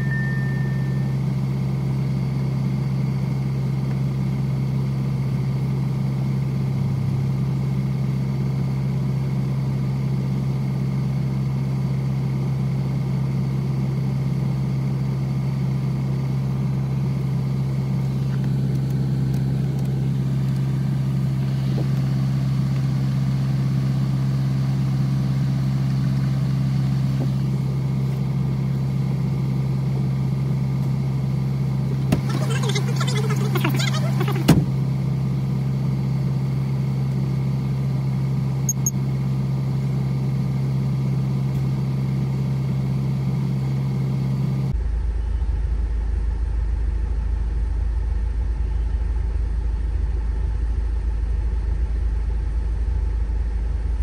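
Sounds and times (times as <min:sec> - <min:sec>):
car engine idling: 0:16.0 - 0:35.5.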